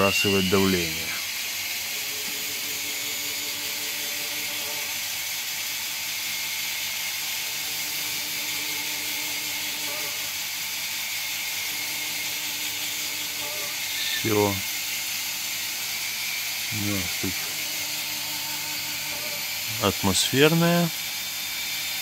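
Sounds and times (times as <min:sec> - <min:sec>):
air hissing through valve: 0:13.3 - 0:17.7.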